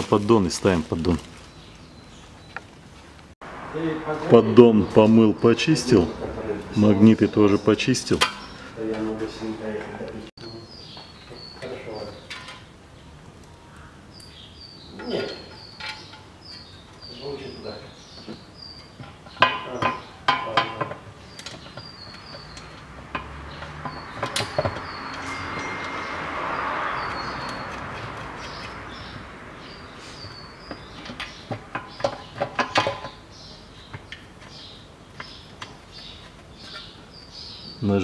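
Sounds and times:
birds chirping: 0.0 - 38.0.

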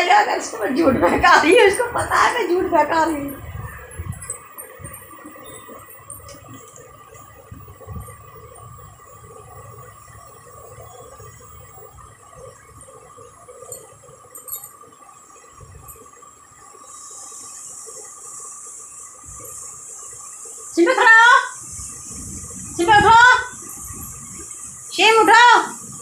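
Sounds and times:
steady tone: 0.0 - 14.7
steady high hiss: 0.0 - 26.0.

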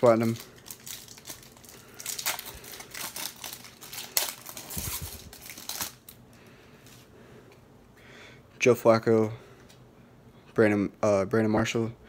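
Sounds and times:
foil wrapper crinkling: 0.0 - 6.2.

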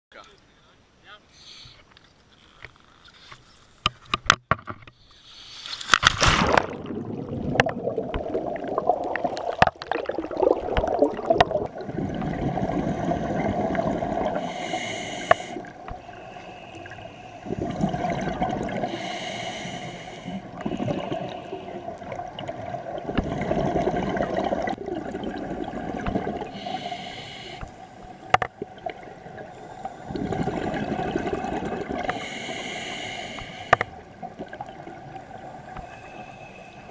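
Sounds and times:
regulator hiss: 1.3 - 1.8, 14.4 - 17.4, 18.9 - 20.5, 26.6 - 28.0, 32.1 - 33.9
splash into water: 5.9 - 8.2
gurgling exhaust bubbles: 6.5 - 14.5, 17.4 - 18.9, 20.5 - 26.6, 30.1 - 32.1.

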